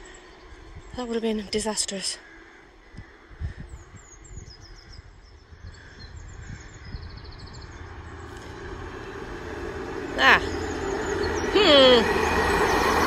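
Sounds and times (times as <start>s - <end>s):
small birds chirping: 0.0s - 8.6s, 10.2s - 13.0s
train rumble: 5.5s - 13.0s.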